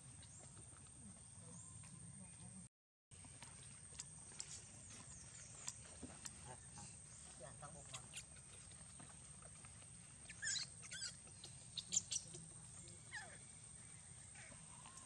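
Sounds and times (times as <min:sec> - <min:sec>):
baby monkey squealing cries: 0:10.3 - 0:12.2.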